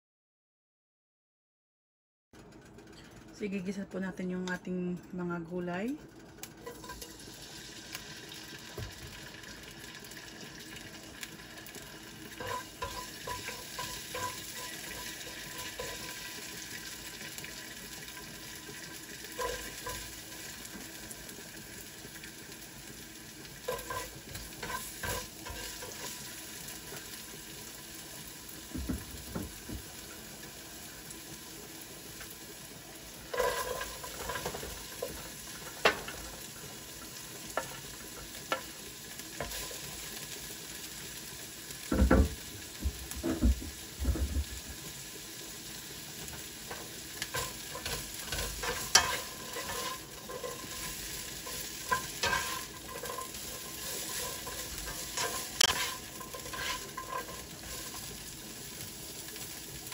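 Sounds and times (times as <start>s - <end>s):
garlic and onion sizzling in oil: 5.7s - 59.9s
beans clattering into pan: 11.3s - 21.3s, 33.2s - 40.2s, 46.0s - 59.9s
spatula scraping and tapping pan: 12.3s - 16.4s, 18.8s - 20.5s, 23.6s - 26.3s, 33.3s - 36.3s, 39.4s - 39.9s, 46.2s - 58.3s.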